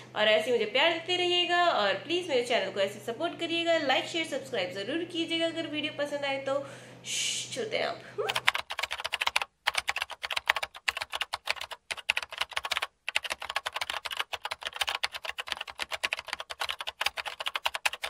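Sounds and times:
keyboard typing clatter: 8.3 - 18.0.

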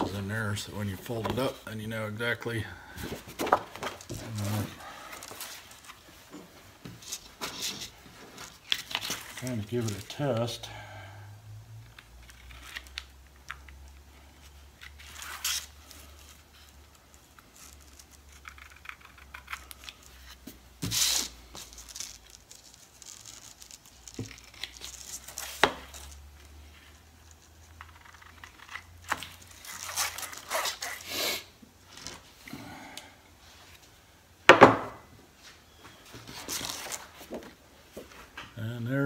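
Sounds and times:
paper rustling: 14.8 - 31.0, 36.2 - 37.6.

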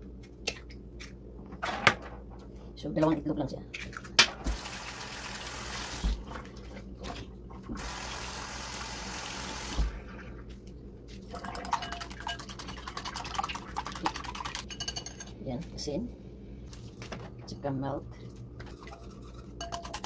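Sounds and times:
whisk beating eggs in glass bowl: 11.4 - 15.3, 18.6 - 20.0.

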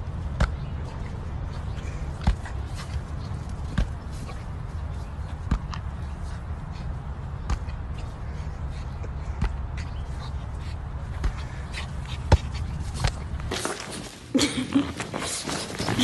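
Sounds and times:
steady low rumble: 0.0 - 13.5
beach ball thumping: 12.2 - 13.8.

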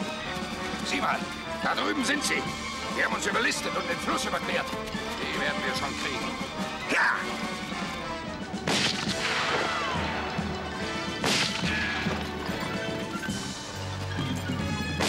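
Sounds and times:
gunshots: 8.5 - 12.7.

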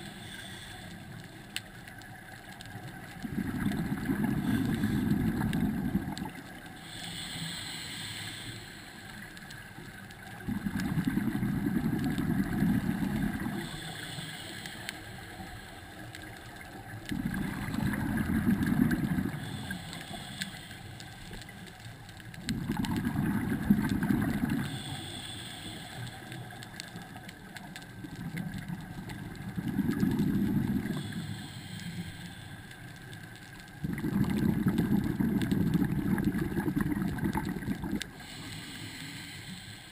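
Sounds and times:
regulator inhale hiss: 0.0 - 2.8, 4.2 - 22.4, 23.3 - 39.9
exhaled bubbling underwater: 1.5 - 7.8, 9.2 - 14.1, 15.5 - 20.5, 21.2 - 25.3, 26.4 - 39.0.

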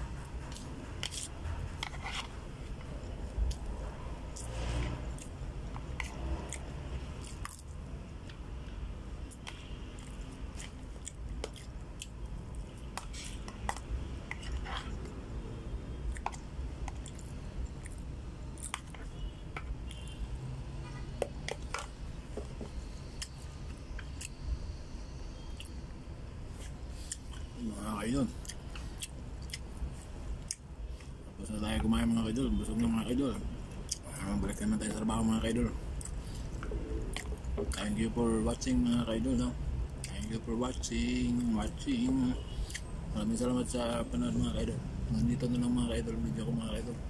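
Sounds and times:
person chewing food: 5.1 - 8.4, 9.3 - 15.2, 16.0 - 24.4, 28.4 - 31.1, 36.0 - 37.8.

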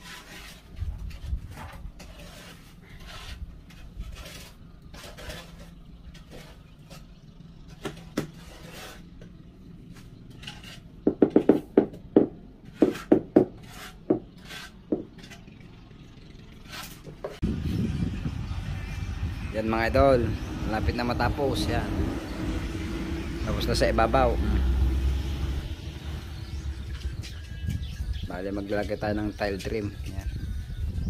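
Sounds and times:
tools scraping on mortar and tiles: 0.0 - 11.7, 12.6 - 15.8, 16.5 - 18.0.

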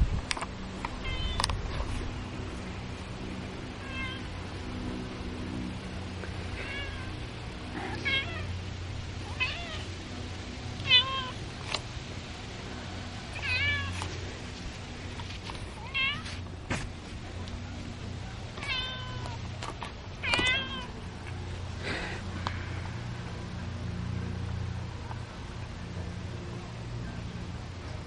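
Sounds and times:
cat meowing: 1.0 - 1.4, 3.8 - 4.2, 6.6 - 7.1, 7.7 - 8.5, 9.2 - 9.9, 10.8 - 11.4, 13.4 - 13.9, 15.8 - 16.3, 18.6 - 19.4, 20.2 - 20.9.

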